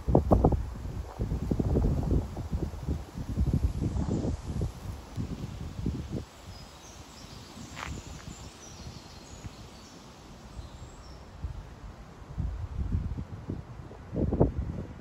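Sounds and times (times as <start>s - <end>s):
wind buffeting microphone: 0.0s - 15.0s
small birds chirping: 5.2s - 11.4s.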